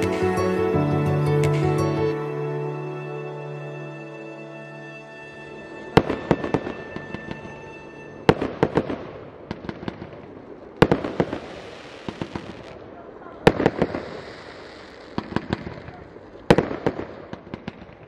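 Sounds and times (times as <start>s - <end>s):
soft music: 0.0s - 9.0s
fireworks bangs and pops: 8.3s - 18.0s.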